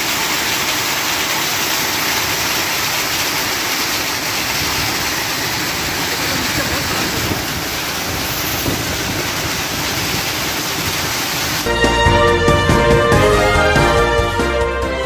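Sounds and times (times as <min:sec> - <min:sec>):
heavy rain and hail: 0:00.0 - 0:11.7
music: 0:11.7 - 0:15.0.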